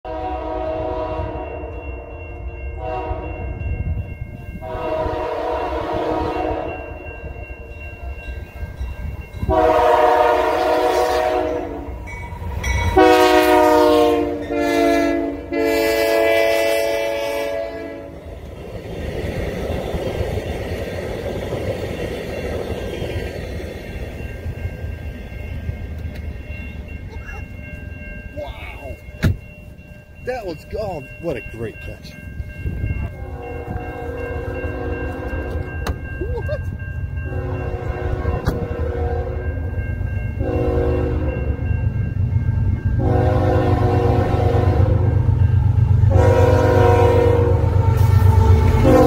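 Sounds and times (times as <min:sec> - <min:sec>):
locomotive air horn blasts: 0:00.0 - 0:01.8, 0:02.8 - 0:03.3, 0:04.6 - 0:07.0, 0:09.5 - 0:12.0, 0:12.9 - 0:18.3, 0:33.2 - 0:35.7, 0:37.3 - 0:39.5, 0:40.4 - 0:41.4, 0:43.0 - 0:45.2, 0:46.1 - 0:49.0
train rumbling on rails: 0:00.1 - 0:49.0.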